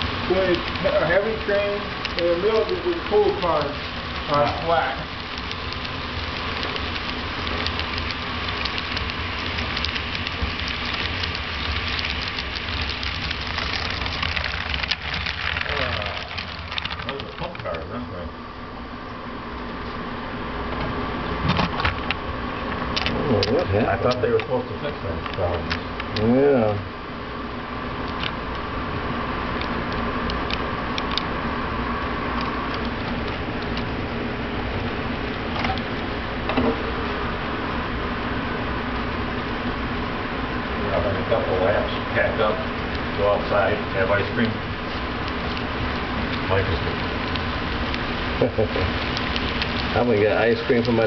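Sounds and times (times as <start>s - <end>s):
model train cars rumbling: 0.0s - 18.2s, 29.6s - 51.0s.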